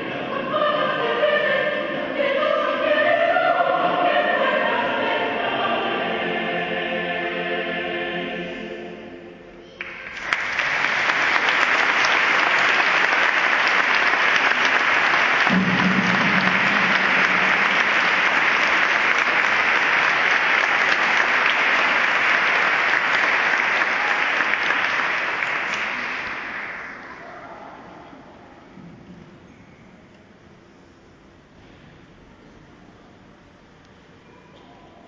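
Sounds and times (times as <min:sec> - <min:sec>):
audience applauding: 0:09.8 - 0:27.3.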